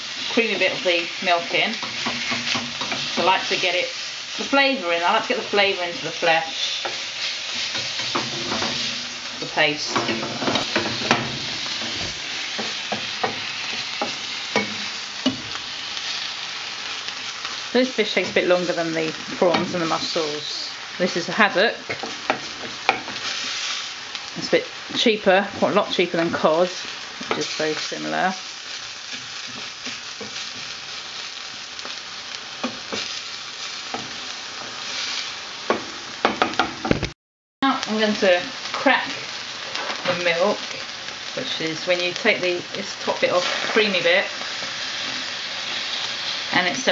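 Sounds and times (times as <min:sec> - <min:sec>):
food sizzling in oil: 0:00.0 - 0:46.9
spatula scraping and knocking pan: 0:01.7 - 0:03.7, 0:06.3 - 0:15.6, 0:21.9 - 0:23.7.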